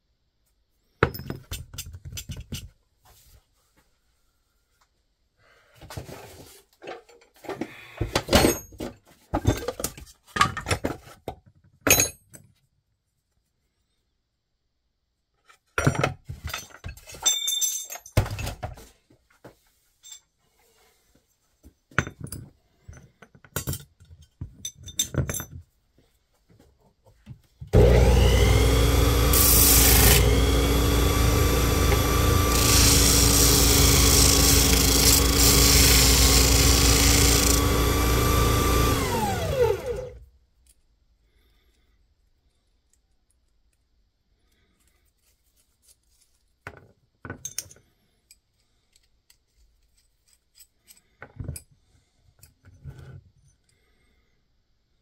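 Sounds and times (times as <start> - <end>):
power tool running: 27.7 - 40.2.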